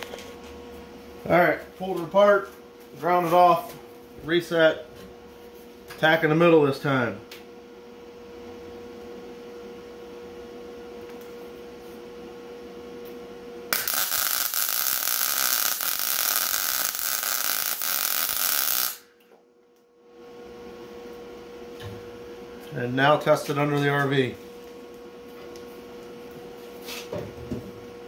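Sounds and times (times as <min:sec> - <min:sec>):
steady hum: 0:00.0 - 0:28.0
welder crackling hiss: 0:13.7 - 0:19.0.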